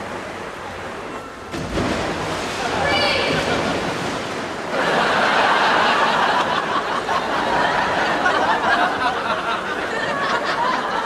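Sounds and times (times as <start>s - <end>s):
audience laughing: 4.7s - 11.0s.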